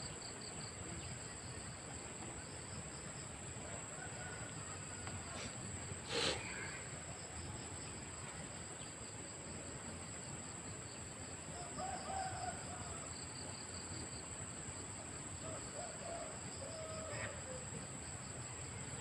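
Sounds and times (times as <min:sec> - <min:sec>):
rooster crowing: 0:03.8 - 0:05.5, 0:11.6 - 0:13.2
pulsing insect chirr: 0:04.1 - 0:19.0
high insect buzz: 0:05.3 - 0:06.9.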